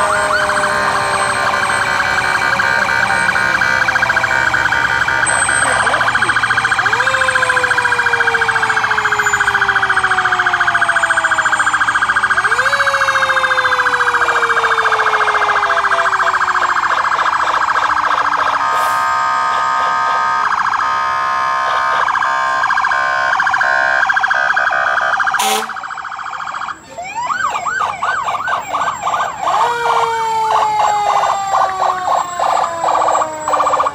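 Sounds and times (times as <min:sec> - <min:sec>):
electronic yelp siren: 0:00.0 - 0:33.9
stuttering on-off siren: 0:00.0 - 0:33.9
wailing siren winding down: 0:00.0 - 0:33.9.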